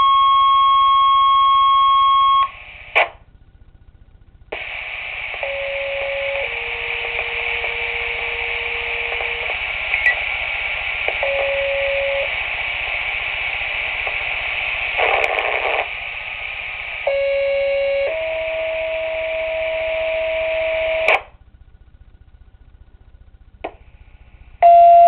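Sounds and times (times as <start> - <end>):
burst of radio static: 2.1 - 3.2, 4.5 - 21.4
radio channel hiss: 2.3 - 3.2, 4.5 - 21.4, 23.6 - 24.6
pager two-tone alert: 24.6 - 25.0.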